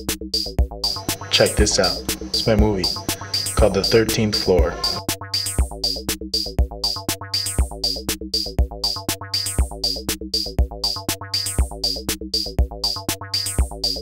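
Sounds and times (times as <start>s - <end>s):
drum machine beat: 0.0s - 14.0s
sustained synthesizer notes: 0.8s - 5.1s.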